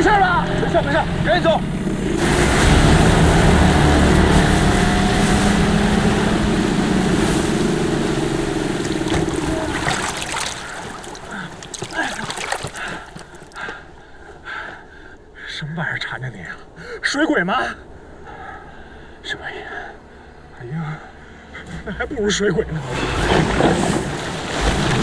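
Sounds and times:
outboard motor running: 0.6s - 13.6s
water rushing along hull: 1.1s - 13.6s, 22.8s - 25.0s.

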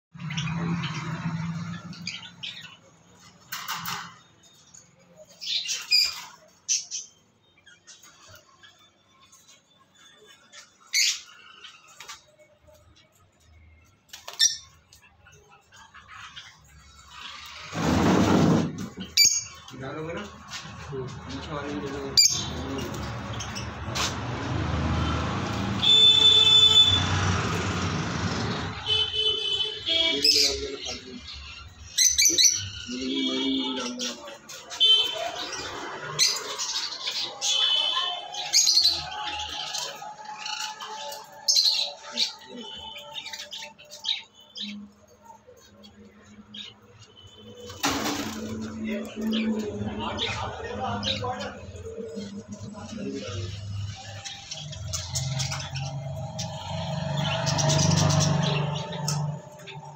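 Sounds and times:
passing motor vehicle rumble: 0.1s - 3.4s, 20.2s - 29.6s, 47.7s - 59.9s
parrots squawking: 10.0s - 12.3s, 22.1s - 59.9s.

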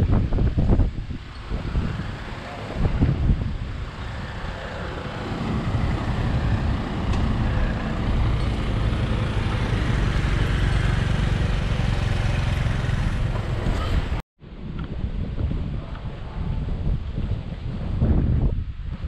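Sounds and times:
engine rumbling: 0.0s - 14.2s.

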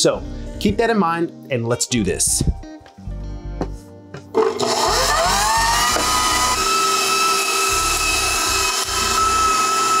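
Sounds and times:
mixer motor whine: 4.3s - 10.0s
meat grinding: 4.4s - 10.0s.

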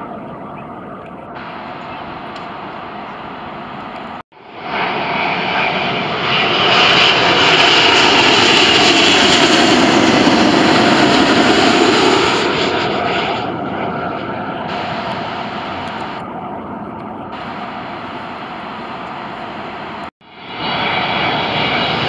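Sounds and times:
jet airliner roaring overhead: 0.0s - 22.0s.

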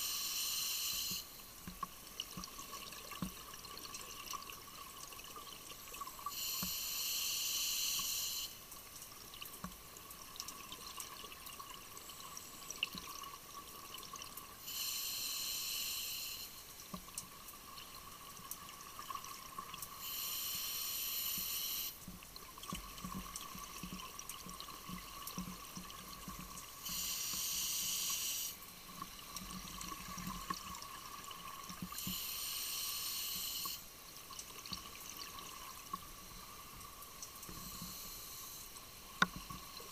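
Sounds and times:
underwater inhalation: 14.6s - 16.6s, 20.0s - 22.0s, 37.5s - 38.7s.

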